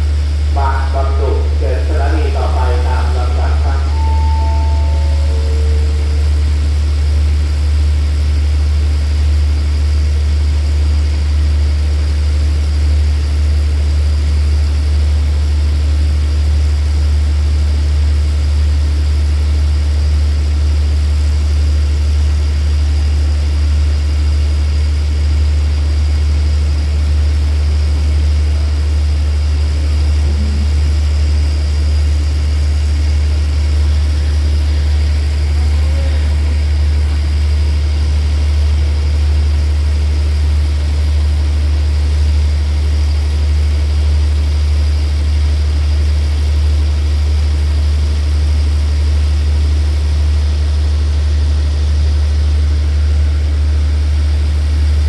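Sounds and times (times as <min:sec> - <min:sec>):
diesel train idling: 0:00.0 - 0:11.2, 0:25.5 - 0:46.9
descending chime notes: 0:01.2 - 0:07.3, 0:30.0 - 0:31.5.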